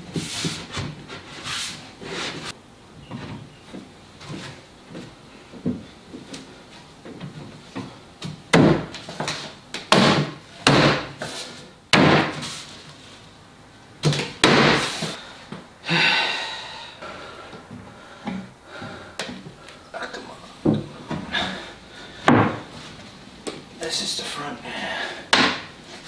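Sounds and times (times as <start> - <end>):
hard wooden thumps: 22.2 - 22.7.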